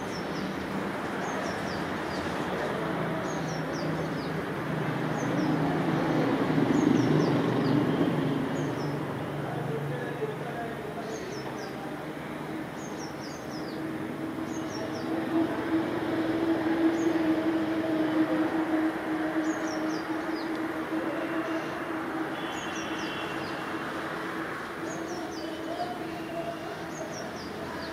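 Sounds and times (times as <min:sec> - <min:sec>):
bird chirping: 0:22.4 - 0:23.7.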